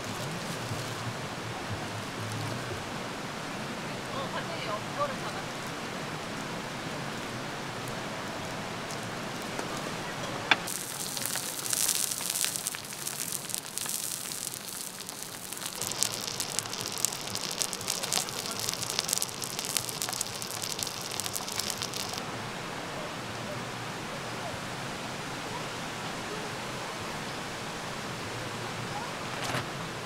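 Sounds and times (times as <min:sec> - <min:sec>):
steady low hiss: 0:00.0 - 0:25.2
fish sizzling in oil: 0:10.7 - 0:22.2.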